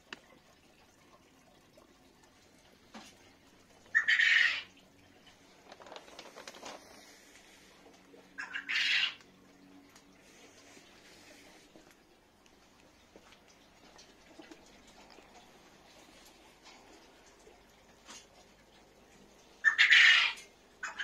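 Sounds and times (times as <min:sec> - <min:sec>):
harsh bird calls: 0:03.9 - 0:04.7, 0:08.4 - 0:09.2.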